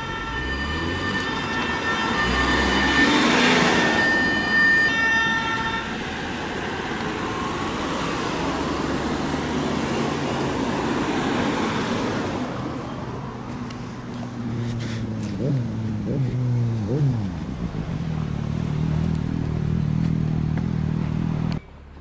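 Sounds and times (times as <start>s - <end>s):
vehicle horn: 0.0s - 6.1s
road traffic noise: 0.0s - 22.0s.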